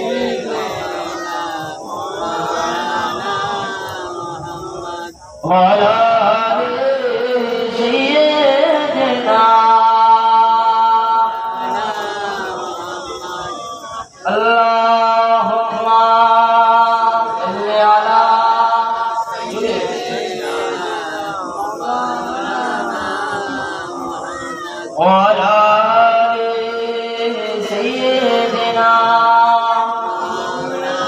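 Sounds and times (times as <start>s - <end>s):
man singing unaccompanied: 0.0s - 31.0s.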